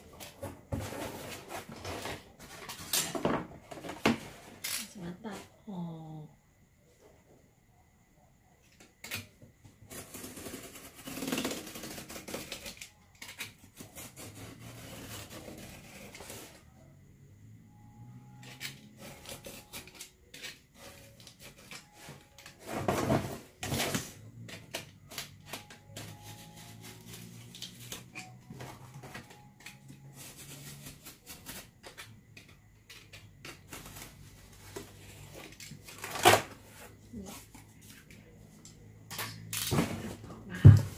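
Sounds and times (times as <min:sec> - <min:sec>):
utility knife cutting cardboard: 0:09.9 - 0:16.6.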